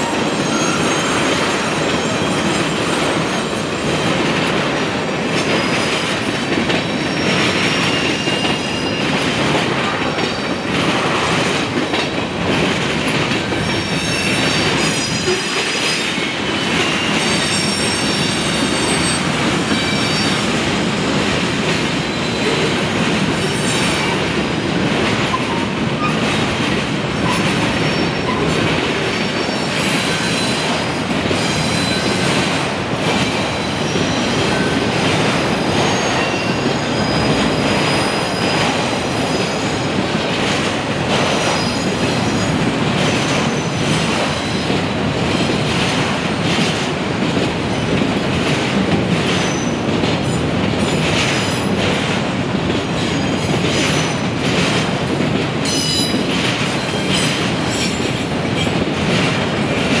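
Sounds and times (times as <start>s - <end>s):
train wheels rumbling on rail: 0.0s - 60.0s
high-pitched wheel squeals: 0.4s - 2.4s.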